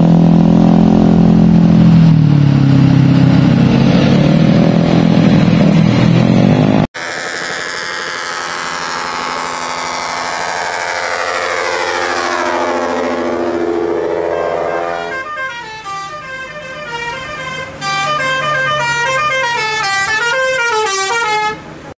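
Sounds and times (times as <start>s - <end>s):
bus horn playing a tune: 7.0s - 21.9s.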